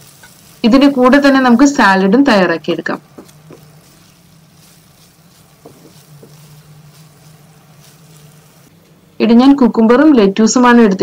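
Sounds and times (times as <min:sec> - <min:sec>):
food sizzling in a pan: 0:00.0 - 0:10.2
spatula knocking against pan: 0:03.0 - 0:03.7, 0:05.5 - 0:06.5.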